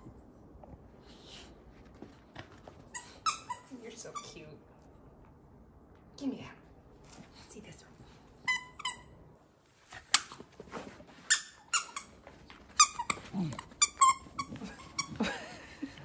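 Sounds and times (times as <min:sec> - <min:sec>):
squeaky dog toy: 0:02.9 - 0:04.4, 0:08.5 - 0:09.2, 0:11.3 - 0:12.2, 0:12.8 - 0:13.2, 0:13.8 - 0:15.2.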